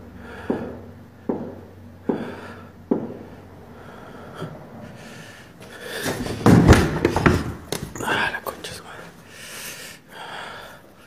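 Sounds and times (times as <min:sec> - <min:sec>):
dull knocks: 0:05.6 - 0:08.3.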